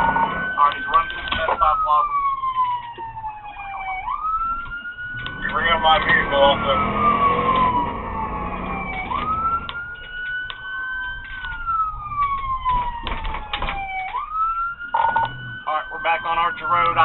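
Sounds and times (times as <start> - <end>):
engine and road rumble: 0.0 - 17.0
police siren wailing: 0.0 - 17.0.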